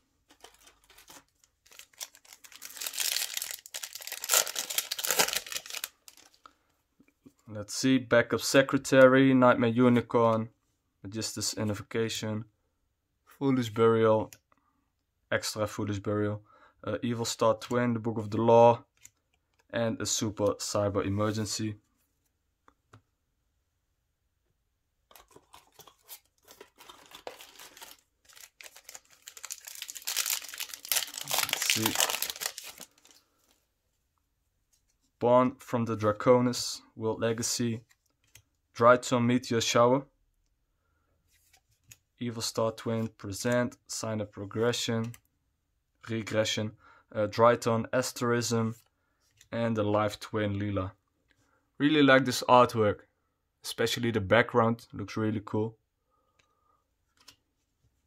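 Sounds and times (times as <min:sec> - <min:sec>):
foil wrapper crinkling and tearing: 0:00.3 - 0:06.4, 0:25.2 - 0:33.2.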